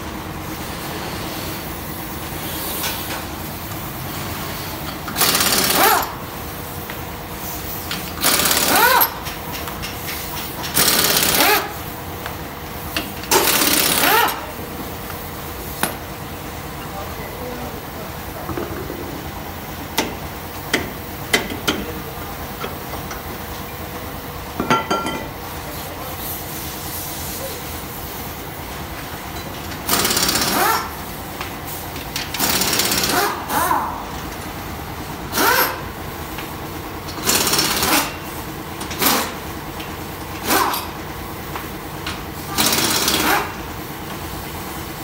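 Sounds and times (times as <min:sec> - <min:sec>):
workshop hum: 0:00.0 - 0:45.0
pneumatic impact wrench bursts: 0:04.1 - 0:06.4, 0:07.4 - 0:11.9, 0:12.8 - 0:14.6, 0:29.7 - 0:33.9, 0:35.3 - 0:35.9, 0:37.1 - 0:39.5, 0:40.2 - 0:41.0, 0:42.1 - 0:44.4.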